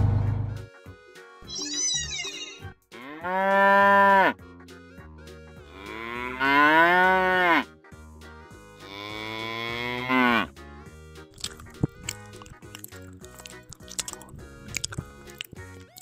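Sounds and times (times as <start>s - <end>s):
light background music: 0.5s - 16.0s
cow mooing: 3.0s - 4.4s, 5.7s - 7.6s, 8.8s - 10.5s.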